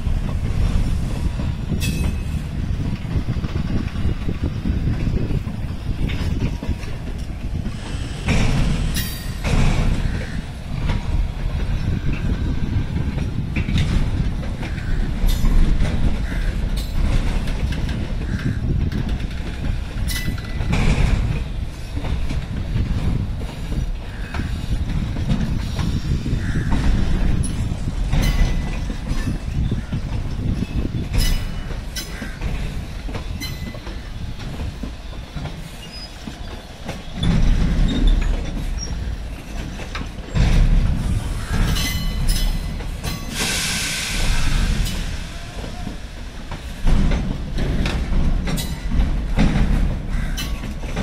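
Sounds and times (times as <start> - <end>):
train wheels rumbling on rails: 0.0 - 51.0
wheels clacking over rail joints: 0.0 - 51.0
high wheel squeaks: 25.6 - 40.6.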